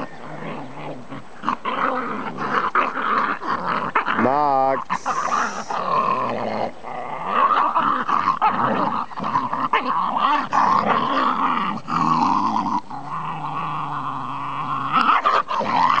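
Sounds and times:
dogs growling while wrestling: 0.0 - 16.0.

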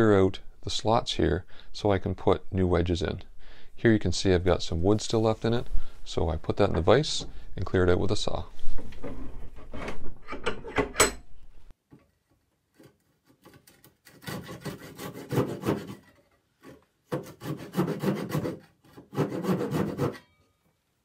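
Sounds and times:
backsaw sawing wood: 13.4 - 20.2.

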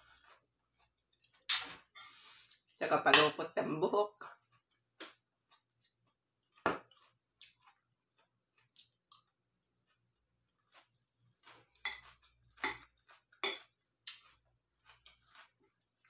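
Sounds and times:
fork clinking against a bowl: 11.8 - 13.8.

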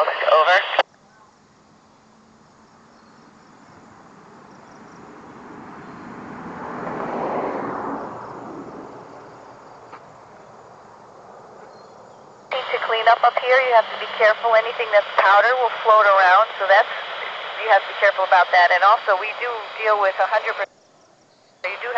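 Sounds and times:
faint insect chirps: 0.8 - 6.2, 8.2 - 12.5, 20.7 - 21.7
vehicle passing by: 3.5 - 12.4.

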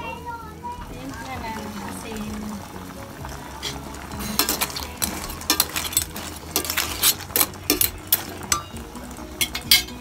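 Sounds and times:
clam shells clinking in pot: 3.6 - 10.0.

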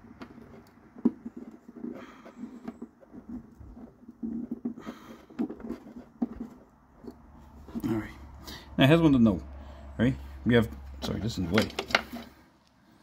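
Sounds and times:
wires rustling: 0.0 - 9.0, 10.2 - 12.5
light clicks and knocks: 11.0 - 12.3.

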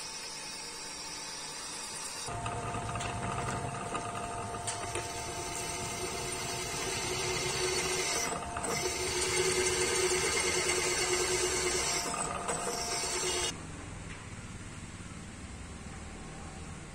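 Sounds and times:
milling machine drilling steel: 2.3 - 13.6.

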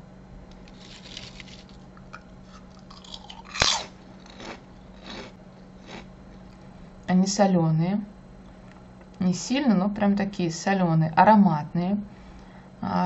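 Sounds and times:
person chewing crunchy chips: 0.7 - 6.6.

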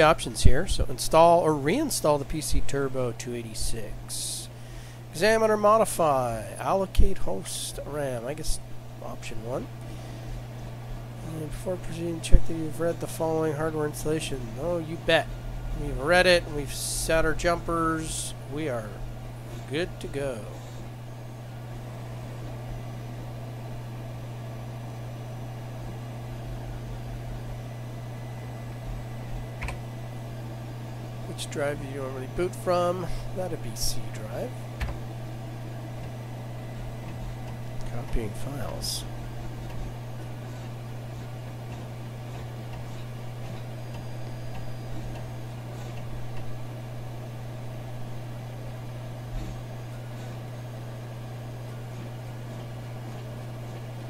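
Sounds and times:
computer fan humming: 0.0 - 54.0
faint disk drive ticks: 28.7 - 30.2, 34.7 - 47.6.

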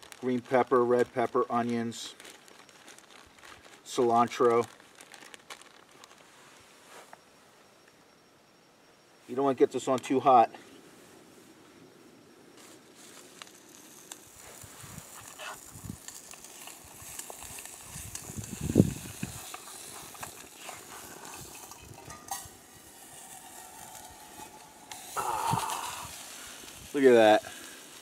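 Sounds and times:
vegetables sizzling in a pot: 13.1 - 28.0.

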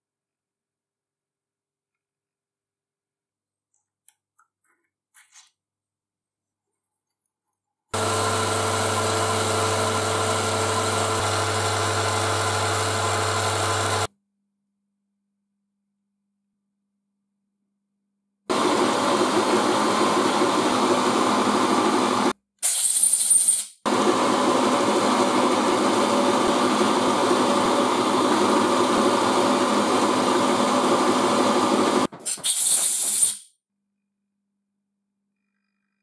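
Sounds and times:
milling machine running: 8.0 - 14.1, 18.5 - 22.3, 23.9 - 32.1
brief high hiss: 22.6 - 23.8, 32.2 - 33.5.

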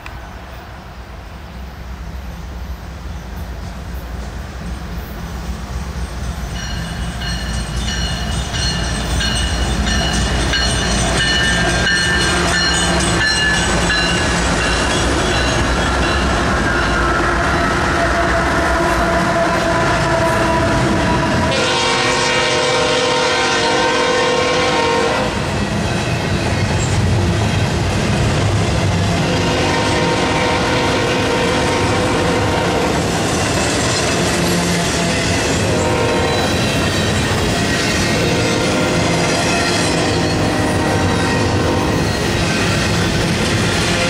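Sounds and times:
diesel locomotives rumbling: 0.0 - 44.0
train wheels clacking on rail joints: 6.2 - 18.0, 31.2 - 44.0
train horn: 16.4 - 25.6, 29.0 - 33.0, 34.4 - 37.0, 37.8 - 42.7, 43.6 - 44.0.

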